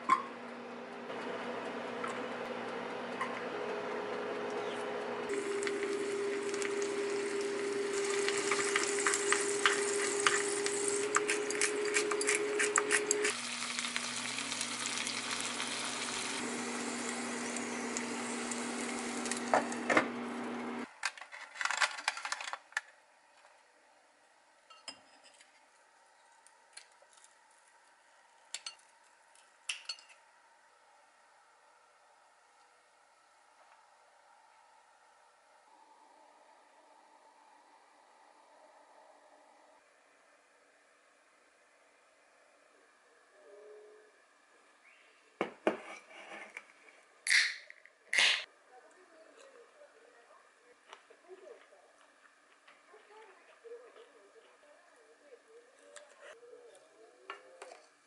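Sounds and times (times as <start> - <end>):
corn sizzling in a frying pan: 5.3 - 20.8.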